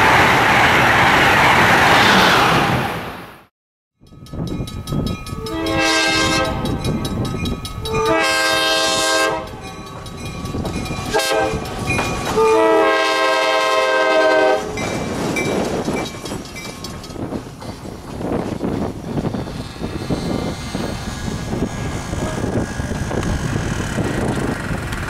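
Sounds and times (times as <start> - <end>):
locomotive horn blasts: 5.4 - 6.8, 7.9 - 9.8, 11.1 - 11.7, 12.3 - 14.8
locomotive running and rolling: 9.4 - 12.6, 14.6 - 25.0.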